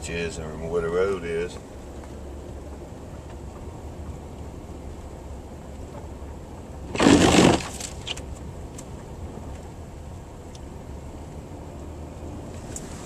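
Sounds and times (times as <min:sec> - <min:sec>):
vehicle engine and tyres rumbling: 0:00.0 - 0:13.0
loud rushing crunch: 0:06.9 - 0:08.0.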